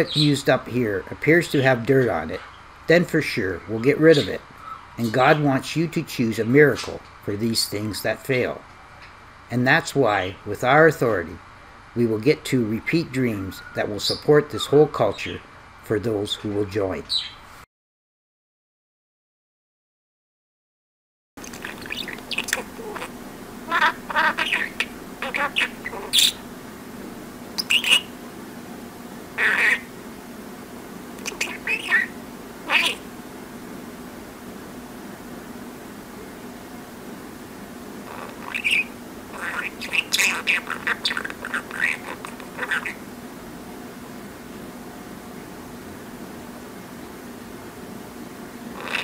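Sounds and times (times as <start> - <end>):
faint steady hum: 0.0 - 17.6, 21.4 - 49.0
budgerigar chattering and chirping: 21.4 - 26.4, 27.6 - 28.2, 29.4 - 29.9, 31.2 - 33.0, 38.1 - 43.0, 48.8 - 49.0
steady hiss: 21.4 - 49.0.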